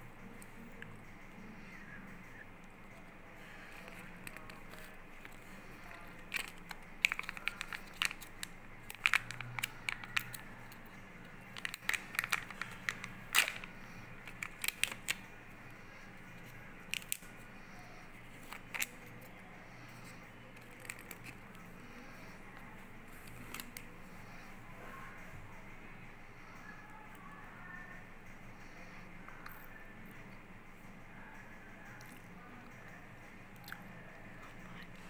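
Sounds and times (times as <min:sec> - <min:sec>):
plastic packaging clicks and crackles: 0:03.4 - 0:22.3, 0:23.1 - 0:23.9.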